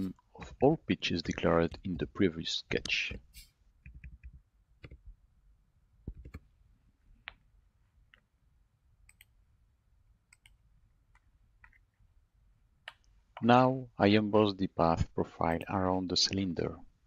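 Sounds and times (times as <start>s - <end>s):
faint room hum: 0.0s - 17.0s
mouse and keyboard clicks: 6.1s - 6.5s.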